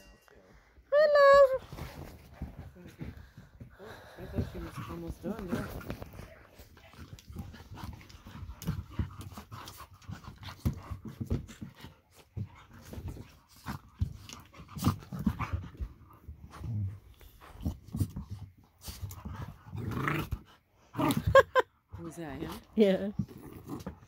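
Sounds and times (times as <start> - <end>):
dogs panting: 2.2 - 19.7.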